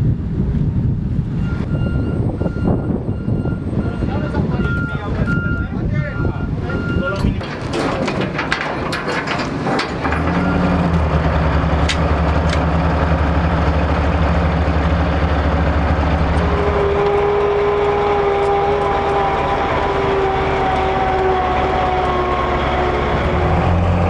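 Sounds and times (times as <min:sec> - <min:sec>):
diesel engine humming: 0:00.0 - 0:24.0
steady whine: 0:06.0 - 0:24.0.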